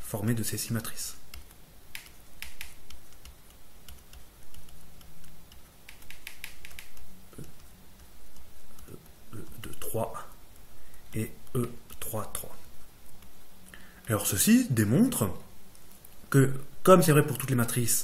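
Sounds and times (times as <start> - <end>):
stylus tapping on tablet: 1.4 - 9.0.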